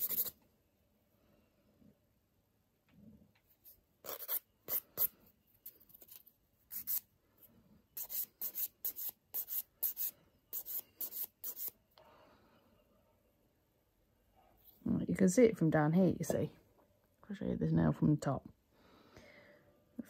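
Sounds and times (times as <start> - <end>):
nail file rasping on fingernail: 0.0 - 0.4, 4.0 - 5.1, 6.0 - 7.0, 8.0 - 11.8.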